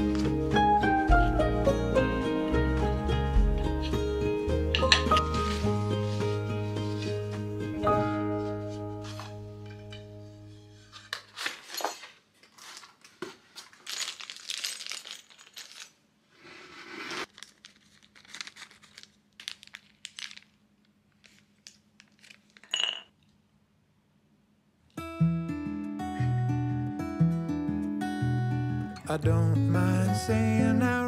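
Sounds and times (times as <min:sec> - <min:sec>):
acoustic guitar music: 0:00.0 - 0:10.9, 0:25.0 - 0:31.0
cardboard and paper rustling: 0:04.9 - 0:07.6, 0:08.4 - 0:09.4, 0:10.8 - 0:15.7, 0:16.4 - 0:22.7
plastic bag crinkling: 0:11.2 - 0:22.8
metal screws clinking: 0:13.6 - 0:16.0, 0:22.6 - 0:23.1.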